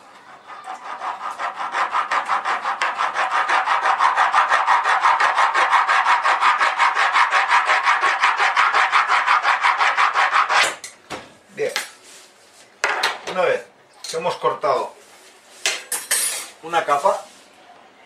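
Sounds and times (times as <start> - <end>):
wire sawing through cake: 0.0 - 10.8.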